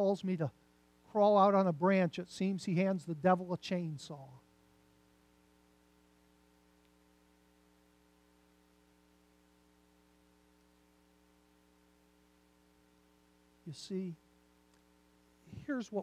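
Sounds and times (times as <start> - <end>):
faint electrical mains hum: 0.0 - 16.0.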